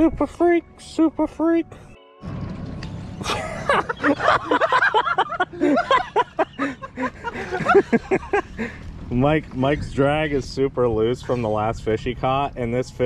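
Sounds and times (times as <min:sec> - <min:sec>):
men laughing and exclaiming: 0:03.2 - 0:11.7.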